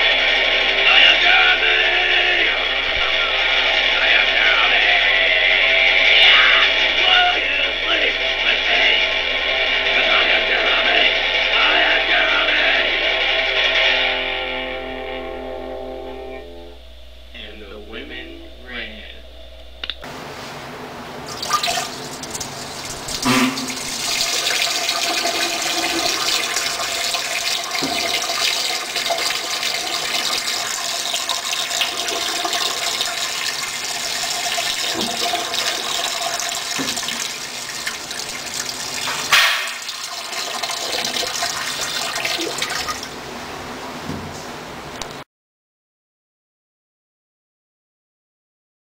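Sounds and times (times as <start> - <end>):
toilet flushing: 21.1 - 44.4
sharp clunks: 39.1 - 39.9.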